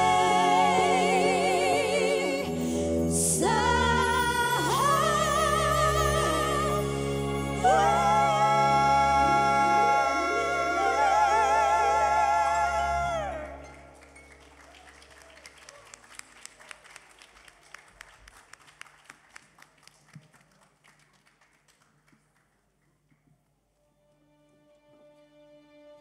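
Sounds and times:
women singing with vibrato: 0.0s - 14.0s
band playing: 0.0s - 14.7s
audience clapping: 13.6s - 23.3s.

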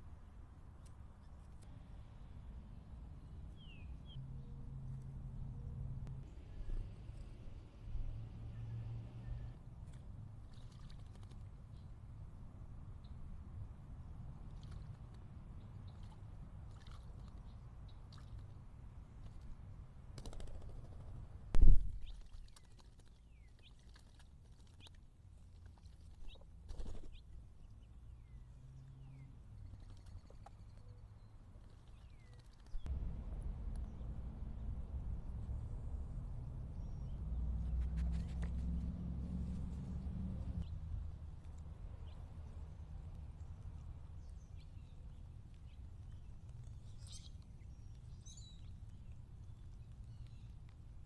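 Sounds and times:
songbirds chirping: 0.2s - 9.6s, 25.8s - 32.9s, 36.2s - 51.0s
low steady rumble: 32.7s - 50.8s.

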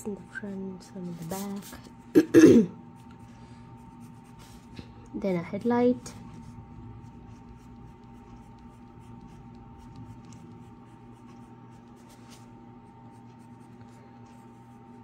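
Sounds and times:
steady hum: 0.0s - 15.0s
pencil scratching on paper: 3.0s - 4.8s, 6.0s - 15.0s.

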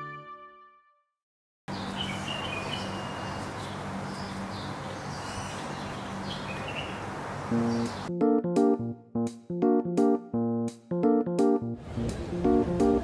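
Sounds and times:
background music: 0.0s - 0.9s, 7.5s - 13.0s
small birds chirping: 1.7s - 8.1s.

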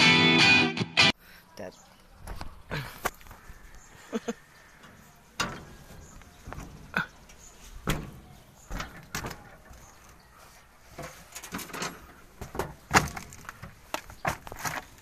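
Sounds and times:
metal knocks and clunks: 4.8s - 7.1s, 7.8s - 9.8s, 11.0s - 14.8s.

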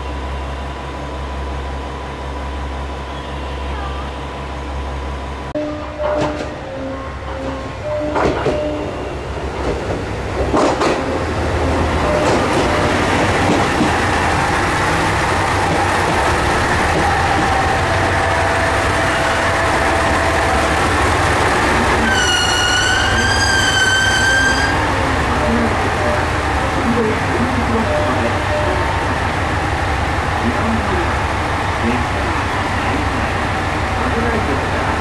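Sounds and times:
train engine and wheels rumbling: 0.0s - 35.0s
high brake squeal: 22.0s - 24.8s.

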